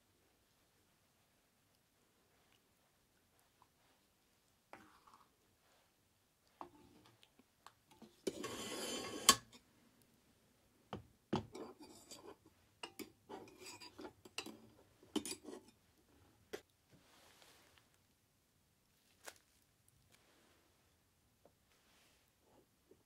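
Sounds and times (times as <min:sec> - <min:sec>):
iron pot scraping on metal: 0:08.2 - 0:09.6, 0:11.6 - 0:14.6.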